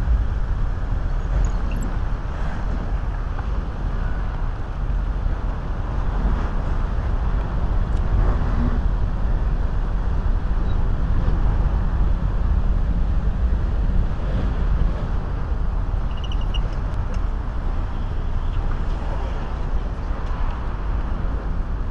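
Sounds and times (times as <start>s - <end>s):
city traffic rumble: 0.0s - 21.9s
faint high squeak: 16.0s - 16.8s.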